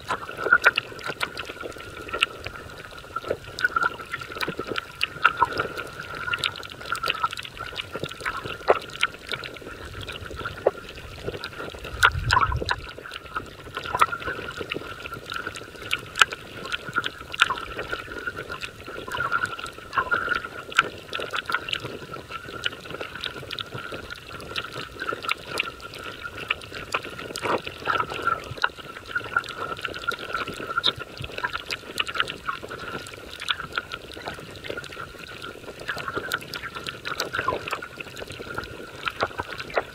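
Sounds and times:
dense crackling of small clicks: 0.0s - 39.9s
low rumble: 11.9s - 12.9s.

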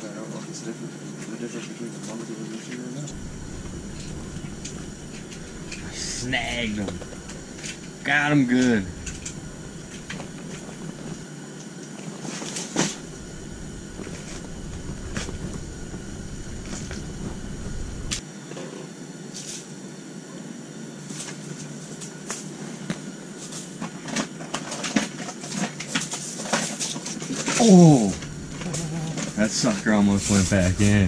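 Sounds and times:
steady hiss: 1.4s - 11.3s, 12.6s - 18.2s, 26.0s - 31.0s.

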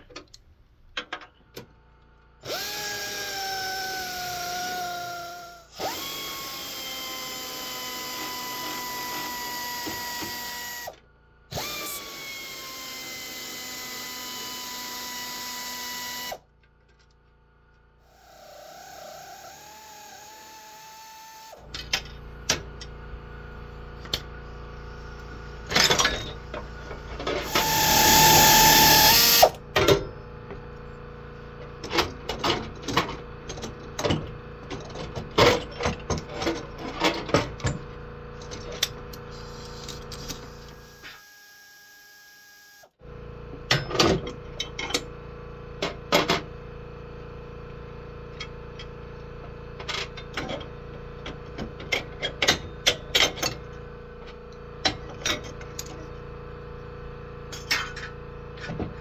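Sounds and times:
loud burst of noise: 27.5s - 29.4s.

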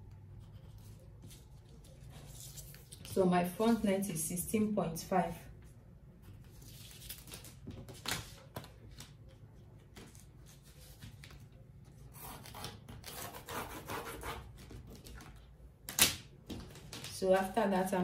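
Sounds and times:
paper rustling on table: 0.6s - 3.2s.

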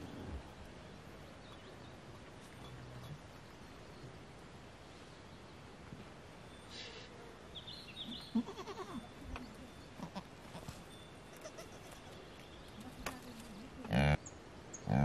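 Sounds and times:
goat bleating: 8.2s - 9.1s, 10.0s - 10.7s, 11.3s - 12.2s.

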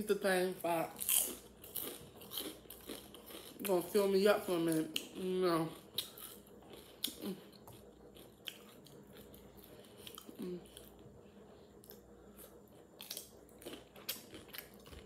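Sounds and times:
person chewing crunchy cucumber: 0.9s - 4.0s, 4.7s - 11.1s, 11.7s - 15.0s
person humming mm: 10.4s - 10.7s.

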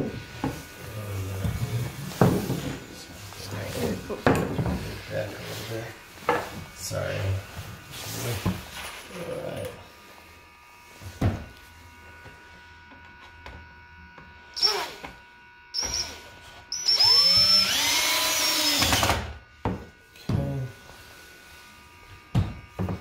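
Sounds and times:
cordless drill whining: 11.5s - 19.5s.

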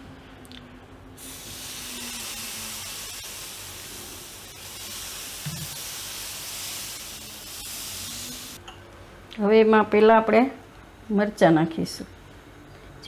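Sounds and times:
batter sizzling on a hot pan: 1.2s - 8.6s.

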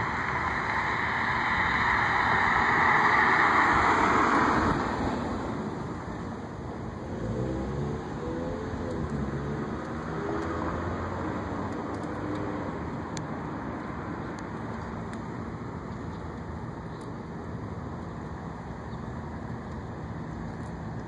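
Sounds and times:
vehicle engine passing: 0.0s - 6.3s
traffic hum: 0.0s - 21.0s.

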